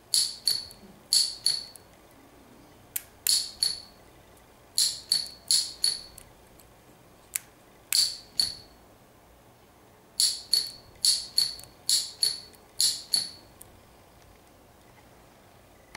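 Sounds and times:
solenoid metallic clicks: 0.1 - 1.9, 4.8 - 6.3, 7.9 - 8.7, 10.2 - 13.4.

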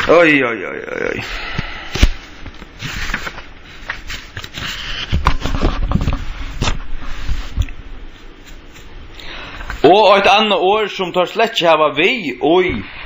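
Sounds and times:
rustling: 1.9 - 10.0.

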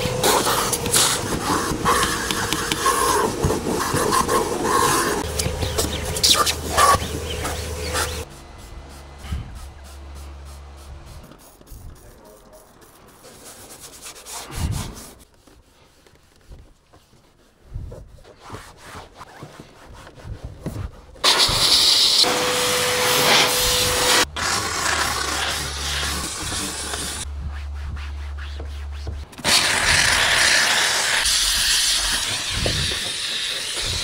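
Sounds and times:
cloth rubbing on upholstery: 9.7 - 21.4
steam cleaner hissing: 21.2 - 27.3, 29.4 - 34.0.

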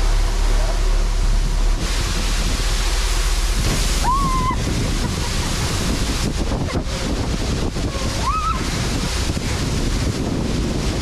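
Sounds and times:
waterfall rushing: 0.0 - 11.0
wind buffeting microphone: 0.0 - 11.0.

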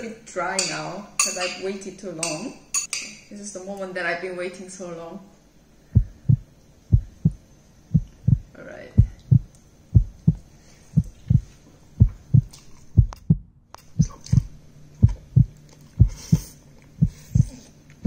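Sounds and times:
heartbeat thumping: 5.9 - 17.6.

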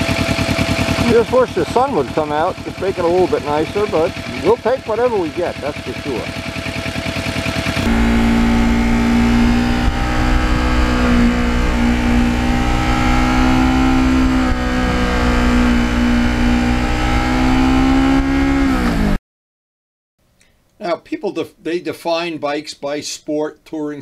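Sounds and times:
motorcycle engine cruising: 0.0 - 19.2
road and wind noise: 7.8 - 19.2.

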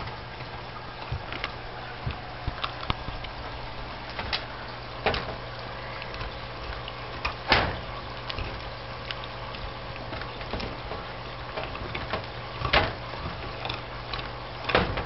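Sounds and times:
steady low hum: 0.0 - 15.0
sharp knocks and clatters: 10.0 - 13.9, 14.6 - 15.0.

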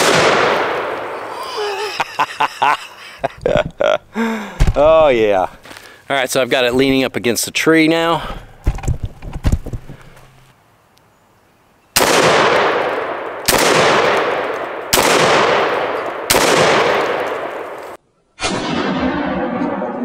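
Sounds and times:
shotgun shots with echo: 0.0 - 1.2, 12.0 - 17.8.

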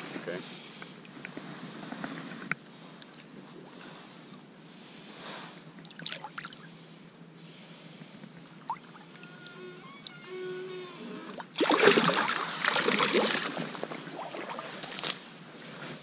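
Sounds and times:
river water running: 5.7 - 9.5, 11.1 - 15.6
water splashes: 11.4 - 15.2.

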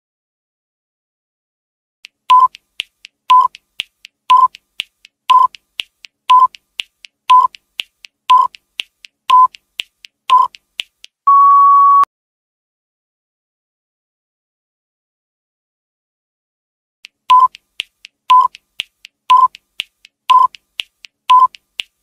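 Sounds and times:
short timer beeps: 2.3 - 2.6, 3.3 - 3.6, 4.3 - 4.6, 5.3 - 5.6, 6.3 - 6.6, 7.3 - 7.6, 8.3 - 8.6, 9.3 - 9.6, 10.3 - 10.6, 11.3 - 12.1, 17.3 - 17.6, 18.3 - 18.6, 19.3 - 19.6, 20.3 - 20.6, 21.3 - 21.6
longer higher beep: 11.3 - 12.1.

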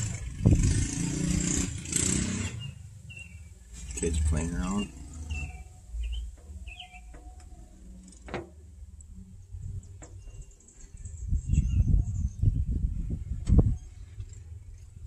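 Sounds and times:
birds chirping: 2.5 - 7.5.

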